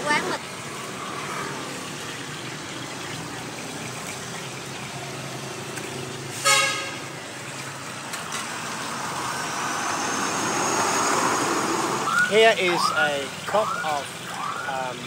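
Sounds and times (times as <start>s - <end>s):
street traffic: 0.0s - 15.0s
vehicle horn honk: 6.4s - 7.1s.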